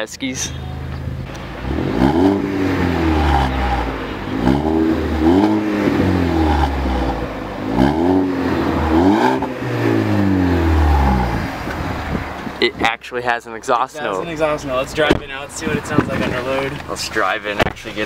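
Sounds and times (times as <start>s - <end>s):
car engine revving: 0.8s - 12.8s.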